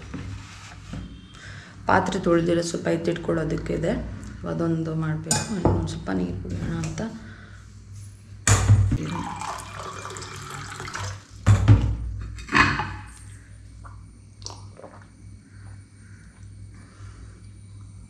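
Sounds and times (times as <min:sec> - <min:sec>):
water running: 0:08.9 - 0:11.8.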